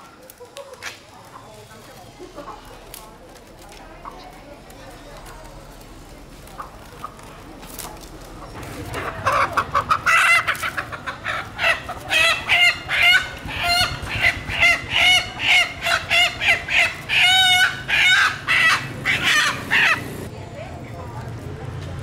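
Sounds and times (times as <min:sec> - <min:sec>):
chickens squawking: 0:08.2 - 0:20.3.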